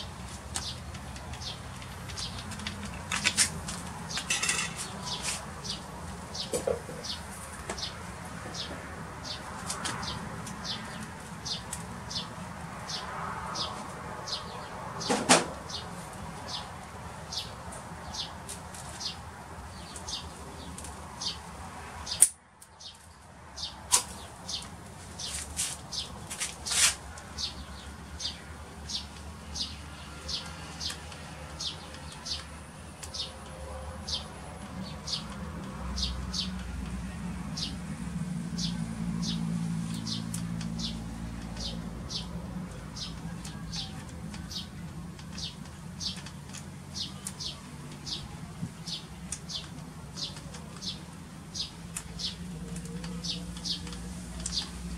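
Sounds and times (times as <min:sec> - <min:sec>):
bird chirping: 0:37.5 - 0:54.9.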